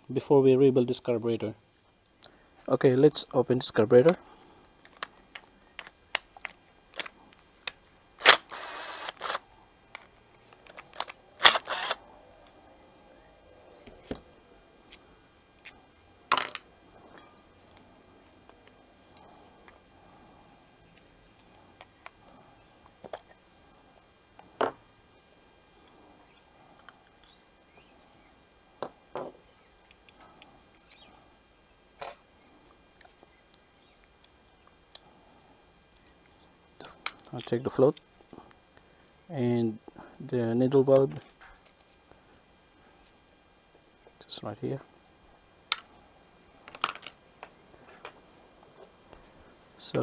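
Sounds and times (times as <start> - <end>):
cordless driver running: 8.2 - 9.4, 10.6 - 12.0
plastic parts clicking and knocking: 46.6 - 48.2.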